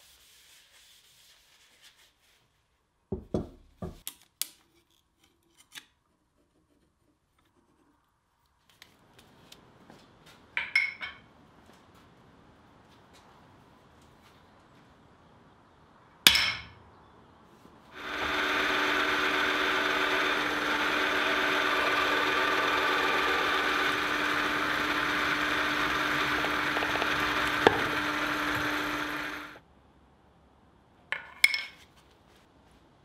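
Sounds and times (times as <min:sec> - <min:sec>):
drill press drilling steel: 0:18.0 - 0:29.6.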